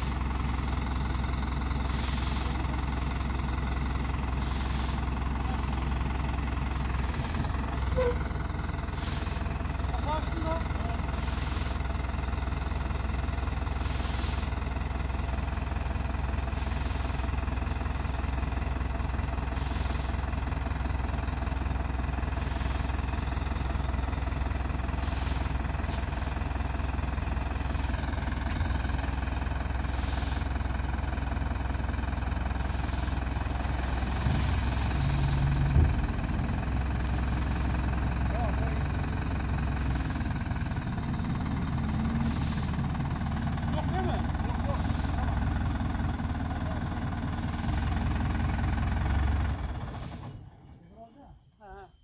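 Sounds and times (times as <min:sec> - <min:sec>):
diesel tractor engine running: 0:00.0 - 0:50.8
manure sliding off trailer bed: 0:33.3 - 0:37.3.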